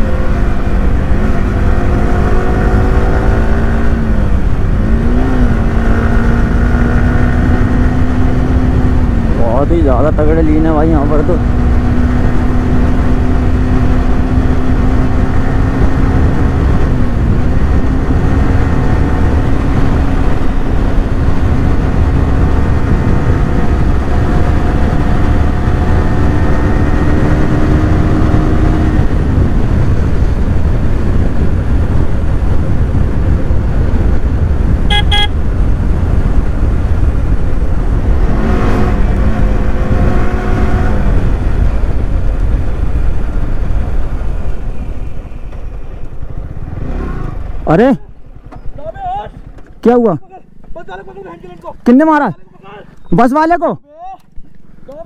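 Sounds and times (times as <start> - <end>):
passing vehicle engine: 0.0 - 53.0
heavy wind rush: 0.0 - 55.0
motorcycle engine cruising: 0.0 - 55.0
short horn beep: 34.9 - 35.4.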